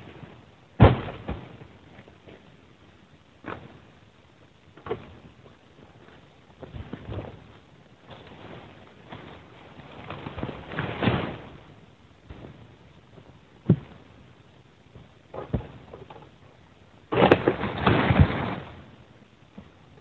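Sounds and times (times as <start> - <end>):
fronds crashing through leaves: 8.2 - 11.8, 17.1 - 18.9.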